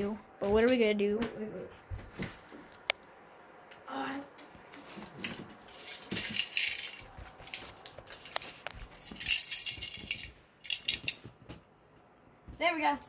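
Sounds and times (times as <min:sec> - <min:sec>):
coins jingling and clinking: 0:05.7 - 0:11.2.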